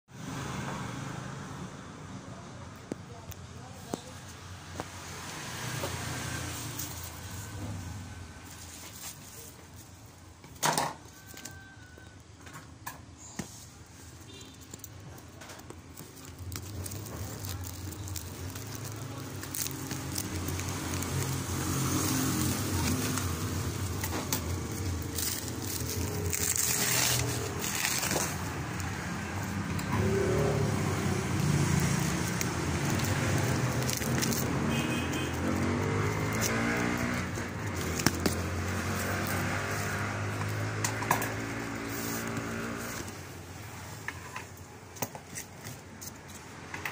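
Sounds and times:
plastic wrapping crinkling: 13.8s - 44.0s
engine hum: 15.0s - 44.8s.

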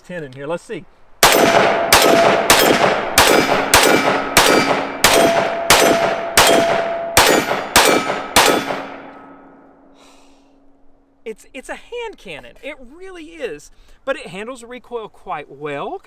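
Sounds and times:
pistol shots: 1.2s - 9.2s
steel targets ringing: 1.2s - 9.7s.

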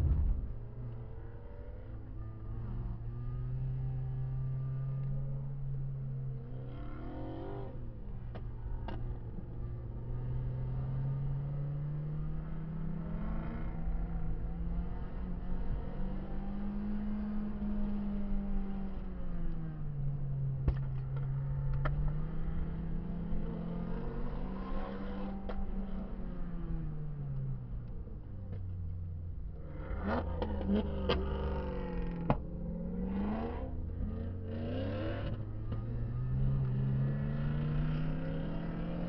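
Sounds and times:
car engine revving: 0.0s - 4.8s, 29.7s - 39.0s.

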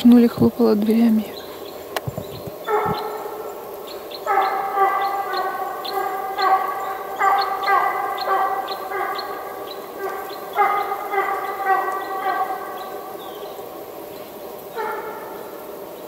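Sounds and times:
hound baying: 2.6s - 3.6s, 4.2s - 13.2s, 14.7s - 15.6s.

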